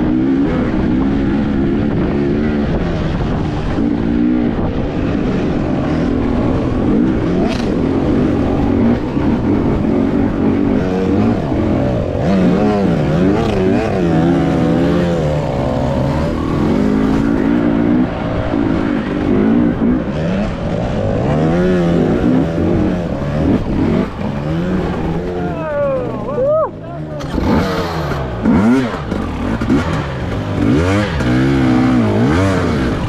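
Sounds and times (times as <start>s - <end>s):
two-stroke motorbike engine revving: 0.0s - 33.0s.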